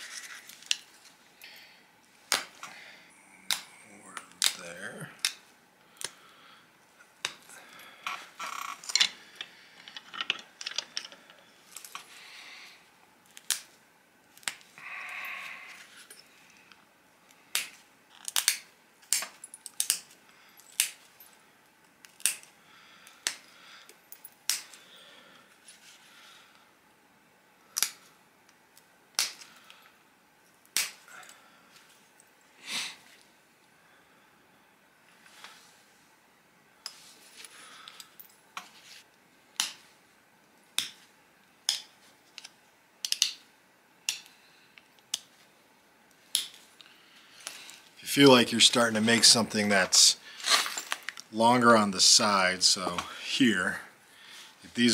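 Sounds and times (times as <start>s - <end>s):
stone flakes clicking and snapping: 13.2s - 13.7s, 14.3s - 14.8s, 16.1s - 21.1s, 22.0s - 24.8s, 29.1s - 29.8s, 30.6s - 31.4s, 41.6s - 43.4s, 46.2s - 47.8s.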